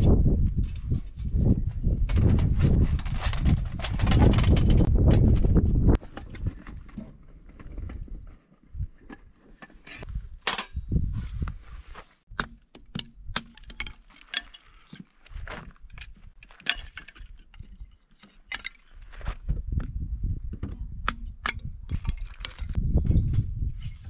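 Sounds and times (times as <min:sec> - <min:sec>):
hatchet splitting kindling: 0:12.3 - 0:19.0.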